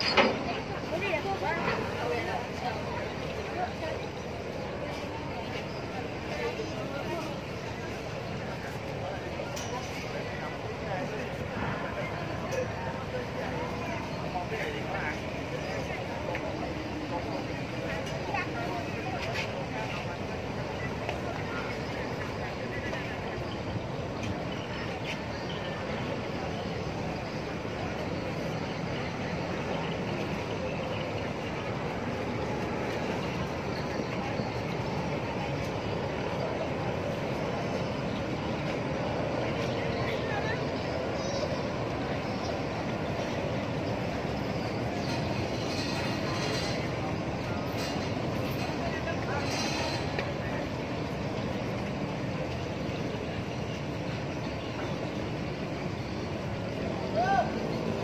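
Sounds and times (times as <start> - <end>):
ferry engines rumbling: 0.0 - 58.0.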